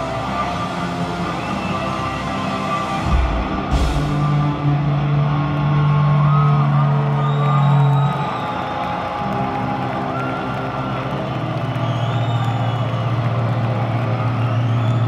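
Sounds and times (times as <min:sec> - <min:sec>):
rock band playing: 0:00.0 - 0:07.2.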